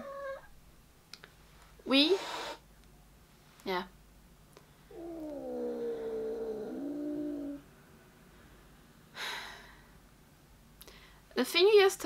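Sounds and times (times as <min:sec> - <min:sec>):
cat yowling: 0:00.0 - 0:00.5, 0:04.9 - 0:07.6.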